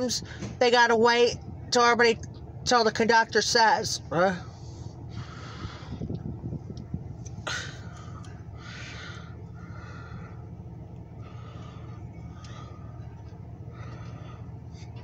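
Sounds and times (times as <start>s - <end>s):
people talking: 0.0s - 4.5s
diesel locomotive idling: 0.0s - 15.0s.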